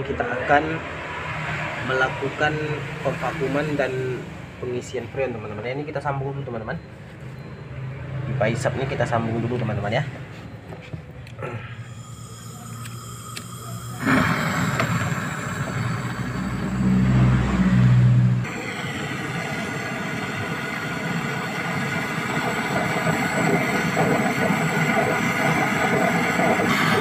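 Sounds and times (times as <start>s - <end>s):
gas torch hissing: 11.4s - 27.0s
low hum: 11.4s - 27.0s.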